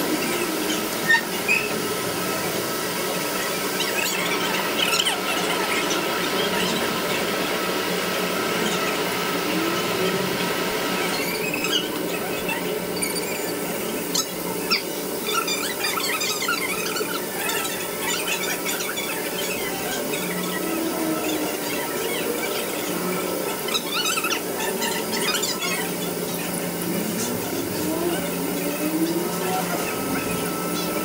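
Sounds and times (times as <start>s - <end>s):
machine tool whine and hum: 0.0s - 31.0s.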